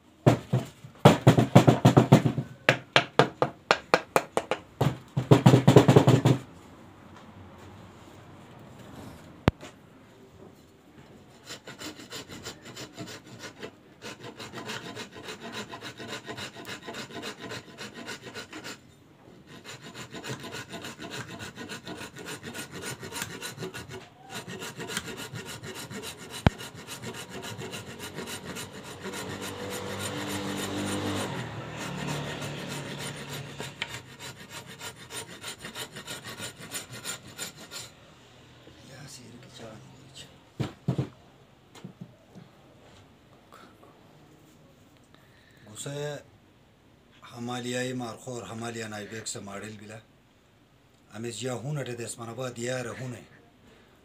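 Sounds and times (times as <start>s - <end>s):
rasp rubbing on wood: 11.3s - 18.8s, 19.4s - 38.0s.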